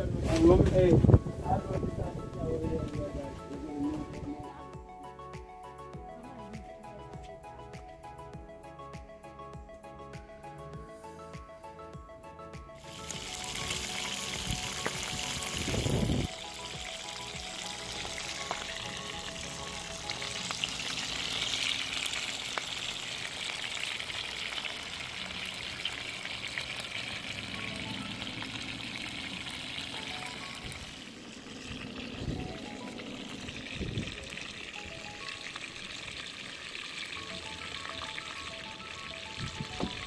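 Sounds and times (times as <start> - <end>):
fish sizzling in hot oil: 12.8 - 40.0.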